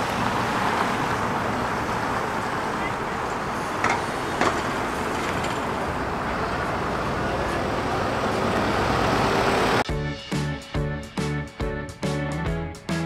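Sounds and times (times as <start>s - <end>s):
bus driving past: 0.0s - 9.9s
street traffic noise: 0.0s - 10.0s.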